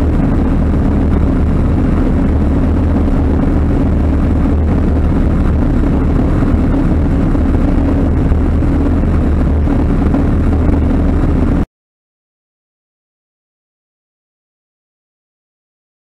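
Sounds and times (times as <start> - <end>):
light aircraft engine droning: 0.0 - 11.7
wind rush: 0.0 - 11.7.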